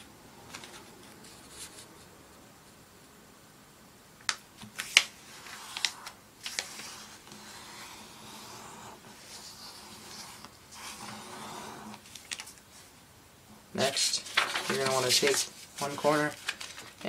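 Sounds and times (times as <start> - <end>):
paper crackling: 0.4 - 2.1, 4.3 - 8.5, 9.2 - 12.9, 13.8 - 17.0
hands rustling paper: 0.4 - 2.2, 4.3 - 8.0, 9.1 - 12.9, 13.8 - 17.0.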